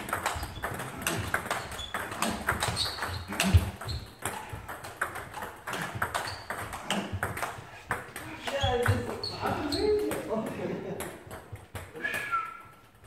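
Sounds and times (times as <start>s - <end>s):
table tennis balls clicking: 0.0s - 13.0s.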